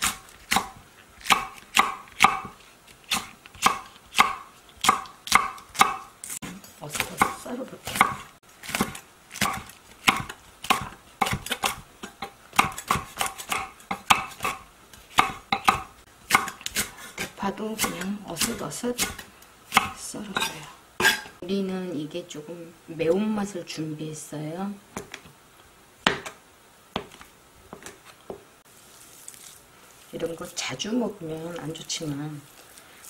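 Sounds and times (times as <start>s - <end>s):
knife chopping on wooden board: 0.0s - 6.1s, 6.9s - 11.8s, 12.5s - 21.3s, 26.0s - 26.4s.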